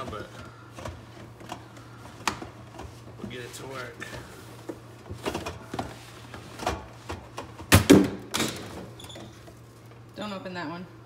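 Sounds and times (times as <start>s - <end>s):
can falling to the floor: 7.7s - 8.8s.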